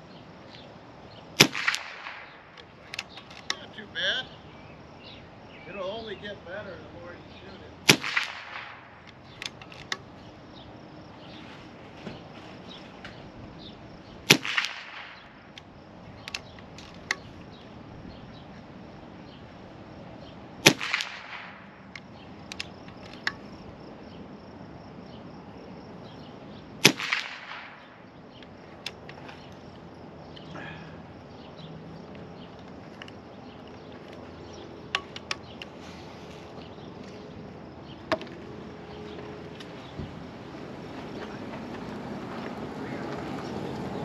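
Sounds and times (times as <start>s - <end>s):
air rifle shots: 1.4s - 4.2s, 7.8s - 10.1s, 14.2s - 15.6s, 20.6s - 23.5s, 26.8s - 28.1s
small clicks: 20.9s - 23.5s.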